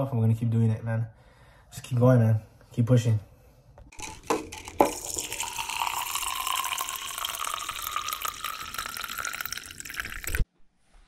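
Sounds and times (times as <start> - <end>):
water pouring into plastic bottle: 3.9 - 10.4.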